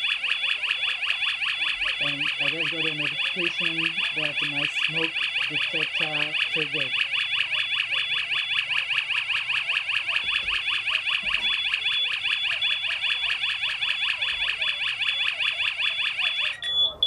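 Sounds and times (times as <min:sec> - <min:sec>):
siren rising warble: 0:01.9 - 0:08.8.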